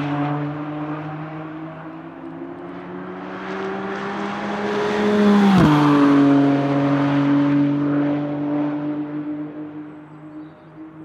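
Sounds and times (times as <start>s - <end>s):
race car passing at speed: 0.0s - 11.0s.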